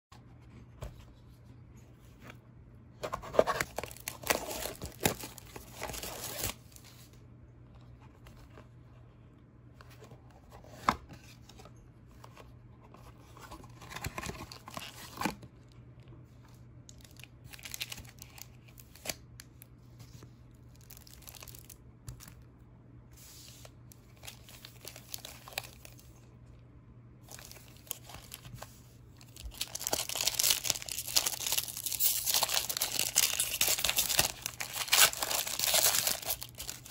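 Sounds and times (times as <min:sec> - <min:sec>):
box handling: 0:03.0 - 0:06.5, 0:12.2 - 0:15.4
foil pack tearing and crinkling: 0:03.6 - 0:06.6, 0:29.3 - 0:36.9
plastic shrink wrap tearing: 0:29.4 - 0:36.9.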